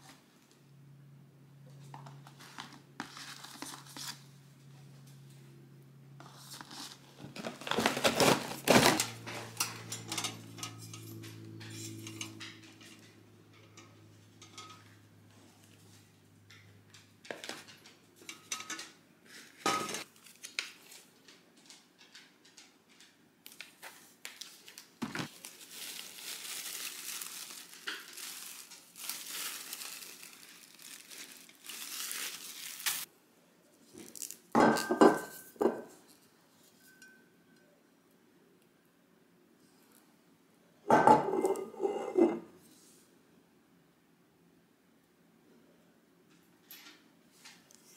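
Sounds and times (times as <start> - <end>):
paper and cardboard rustling: 2.1 - 4.3, 6.2 - 9.6, 23.5 - 33.1
glass clinking: 36.8 - 37.6.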